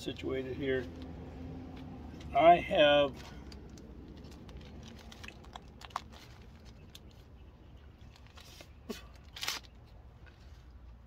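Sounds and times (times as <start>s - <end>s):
faint handling clicks and rustles: 3.0s - 11.0s
crinkling rustle: 3.1s - 11.0s.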